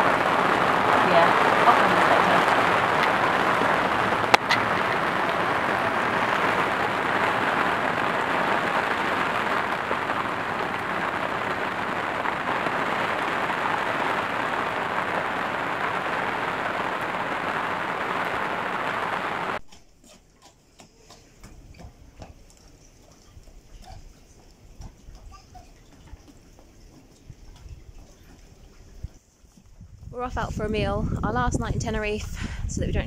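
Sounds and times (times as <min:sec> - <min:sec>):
torrential rain hissing: 0:00.0 - 0:19.6.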